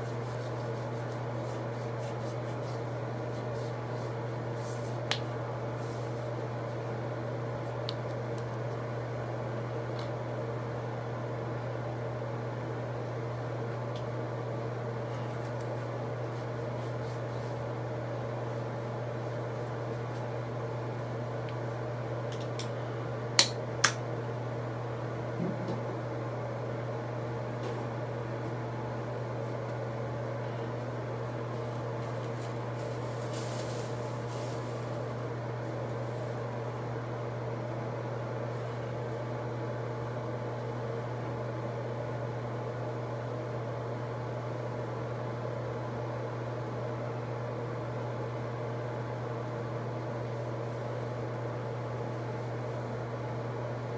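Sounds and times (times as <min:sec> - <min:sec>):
low machine hum: 0:00.0 - 0:53.9.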